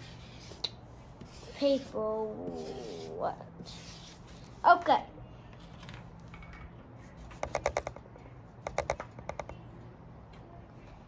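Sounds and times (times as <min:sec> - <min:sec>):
marker tapping on paper: 0:07.3 - 0:08.0, 0:08.6 - 0:09.6.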